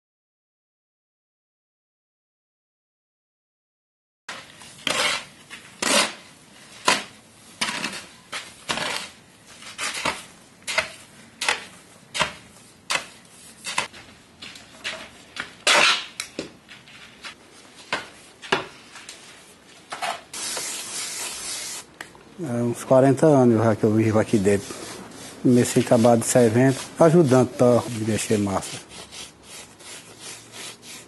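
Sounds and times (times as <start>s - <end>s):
shovel scraping concrete: 4.3s - 13.9s, 14.8s - 16.2s, 19.9s - 21.9s, 24.3s - 31.0s.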